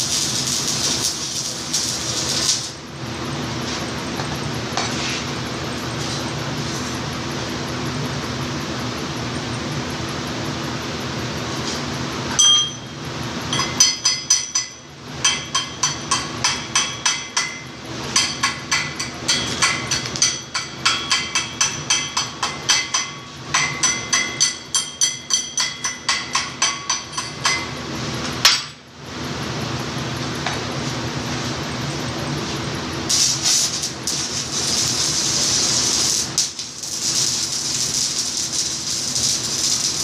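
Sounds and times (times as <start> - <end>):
steady low hum: 0.0 - 40.0
hammer striking steel: 13.5 - 27.7, 28.4 - 28.8.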